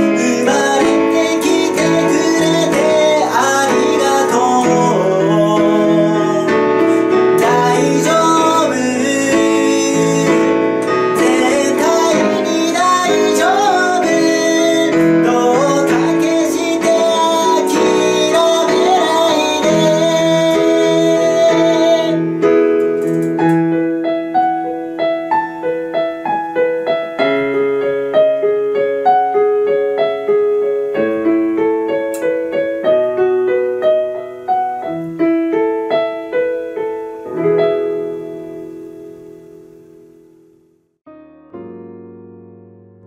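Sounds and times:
full song arrangement: 0.0 - 29.4
solo piano playing: 0.0 - 43.0.

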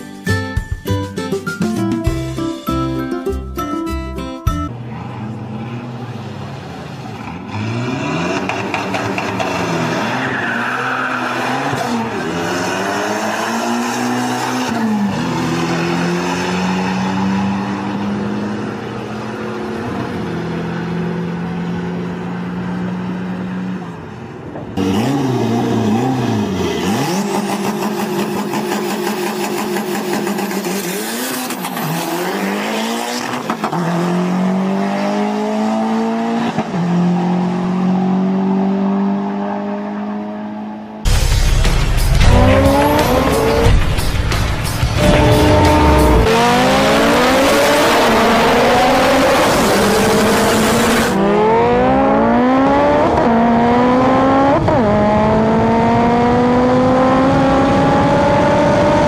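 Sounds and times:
car engine accelerating through gears: 4.8 - 24.1, 24.8 - 41.0, 42.1 - 59.0.

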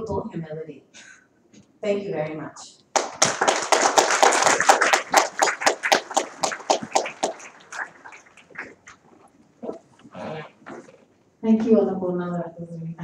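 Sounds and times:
audience applauding: 2.9 - 9.0.

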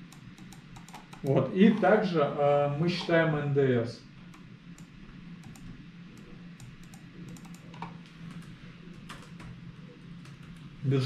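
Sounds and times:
laptop keyboard typing: 0.0 - 1.4, 4.3 - 9.6, 10.2 - 10.7.

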